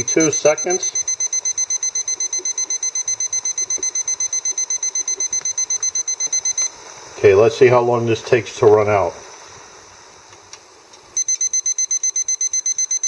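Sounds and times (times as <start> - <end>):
thermometer alarm beeping rapidly: 0.0 - 6.8, 11.2 - 13.0.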